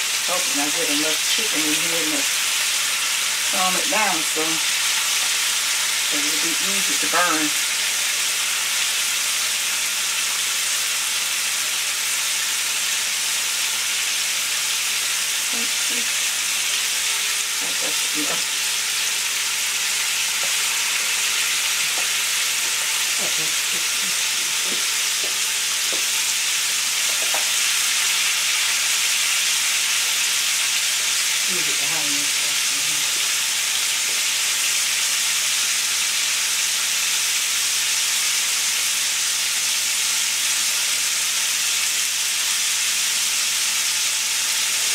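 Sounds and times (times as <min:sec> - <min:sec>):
oil sizzling while deep-frying: 0:00.0 - 0:44.9.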